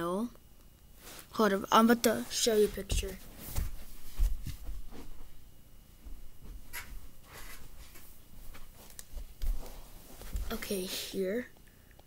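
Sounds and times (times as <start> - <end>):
soft rustles: 1.0 - 1.4, 2.0 - 5.4, 6.0 - 10.9.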